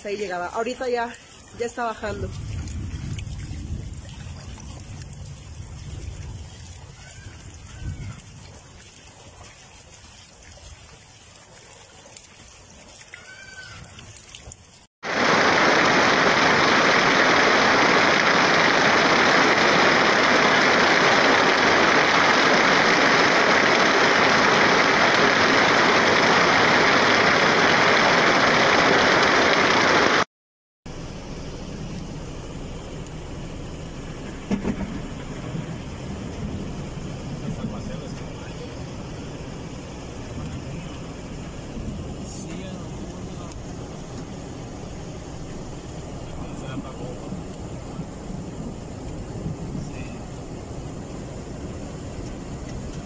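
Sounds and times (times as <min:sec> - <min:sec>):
floodwater rushing: 0:00.4 - 0:30.3, 0:32.1 - 0:53.0
low rumble: 0:02.2 - 0:06.6.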